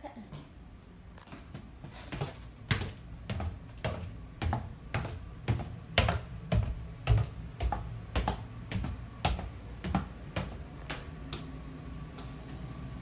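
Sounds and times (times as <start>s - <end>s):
footsteps going down stairs: 0.3s - 13.0s.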